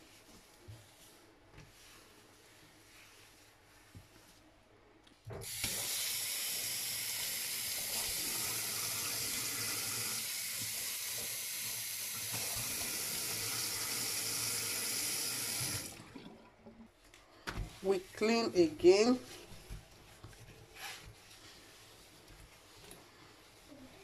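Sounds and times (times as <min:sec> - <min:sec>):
tap water running into sink: 0:05.4 - 0:16.8.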